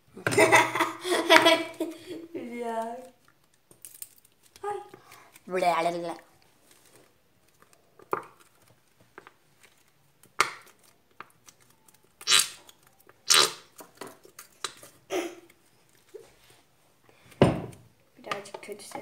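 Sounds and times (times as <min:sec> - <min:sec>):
glue bottle sputtering squirts: 0:12.2 - 0:12.6, 0:13.3 - 0:13.6.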